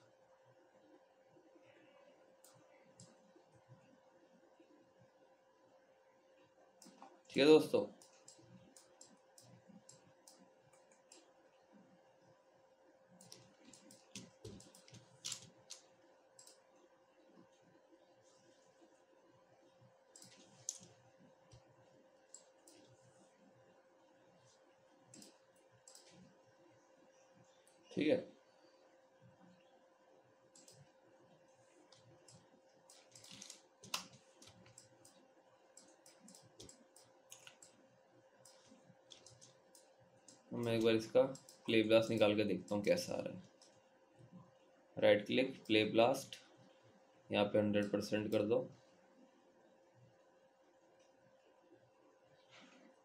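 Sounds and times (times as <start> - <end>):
faint steady hum: 0.0 - 53.0
computer mouse clicks: 2.4 - 3.8, 6.8 - 7.2, 7.9 - 11.3, 13.1 - 16.7, 20.1 - 23.0, 25.1 - 26.4, 30.5 - 31.0, 31.8 - 37.8, 38.4 - 44.4.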